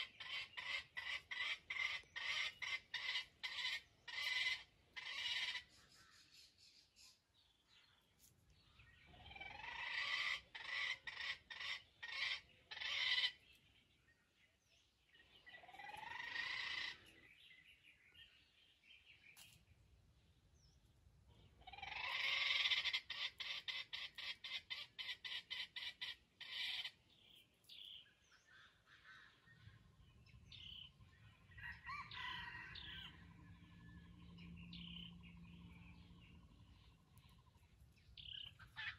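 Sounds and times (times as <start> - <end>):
junglefowl calling: 0.0 - 7.2, 9.1 - 13.5, 15.5 - 17.1, 21.6 - 27.0, 28.4 - 29.7, 31.5 - 33.9, 38.2 - 38.9.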